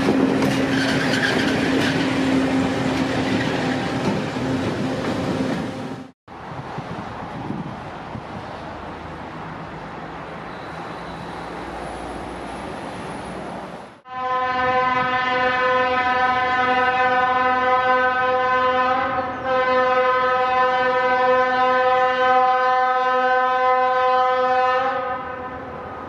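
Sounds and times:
outdoor noise: 0.0 - 26.0
locomotive horn long note: 14.0 - 25.8.

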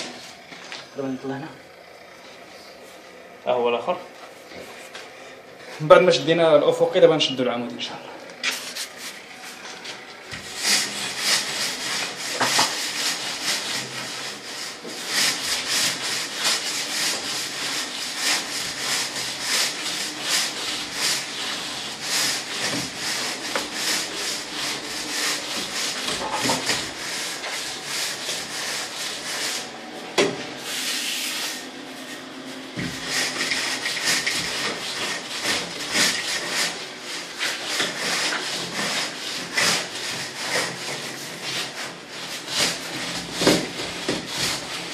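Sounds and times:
straightedge scraping cement render: 8.4 - 29.7, 30.6 - 44.9.

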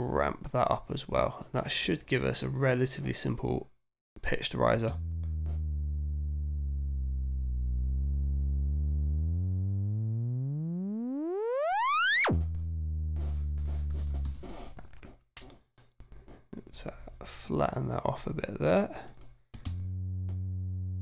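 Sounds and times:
synth riser sweeping up in pitch: 4.9 - 14.7.

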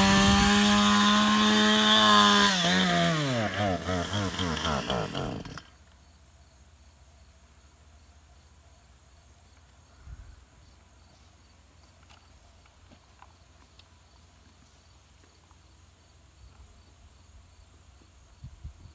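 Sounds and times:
insects chirping: 5.4 - 18.9.

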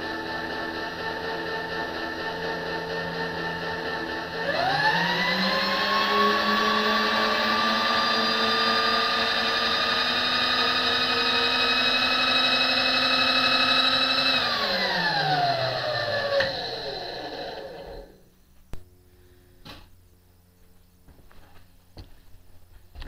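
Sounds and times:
electric motor whining: 0.0 - 18.2.

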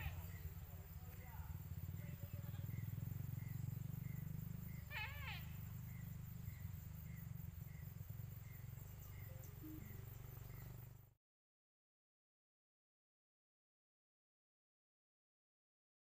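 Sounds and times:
warbling call: 4.7 - 5.7.

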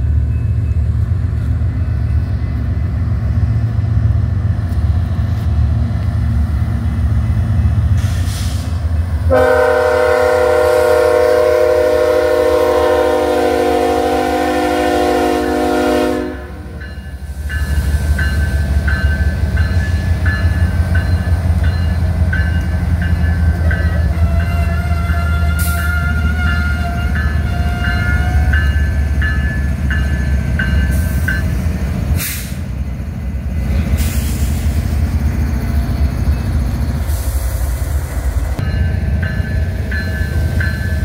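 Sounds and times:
locomotive engine rumble: 0.0 - 41.0
train wheels clicking on rail: 16.8 - 32.9, 33.8 - 41.0.

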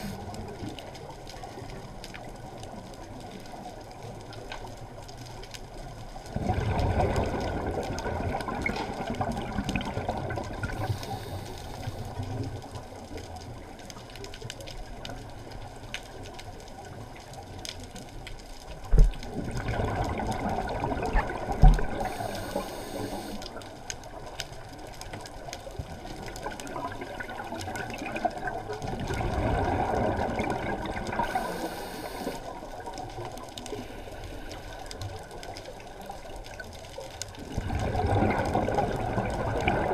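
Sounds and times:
short high hiss: 22.1 - 23.4, 31.3 - 32.4.

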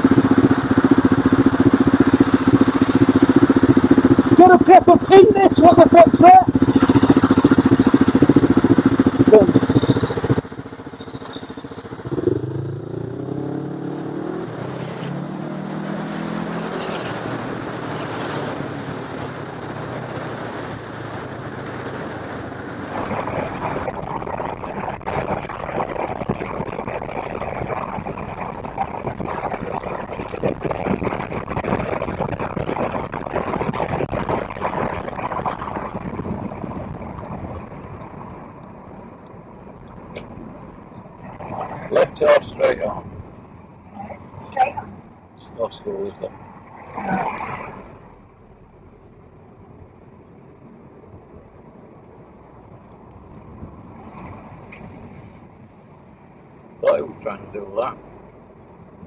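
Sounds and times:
vehicle engine accelerating: 0.0 - 38.7
road and wind noise in car: 0.0 - 59.0.

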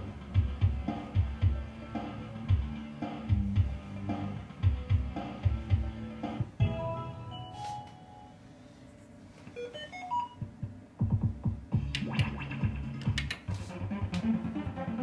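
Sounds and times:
sharp clicks: 13.0 - 13.5.

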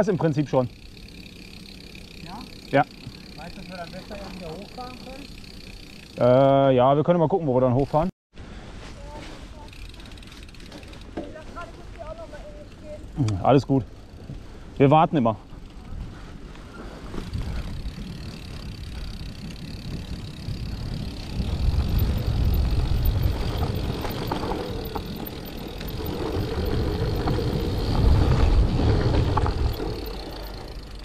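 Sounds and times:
bike rattling over bumps: 0.0 - 6.7, 9.0 - 31.0
bike tyre noise: 0.0 - 6.8, 8.4 - 31.0
wind rushing over microphone: 17.2 - 30.3.

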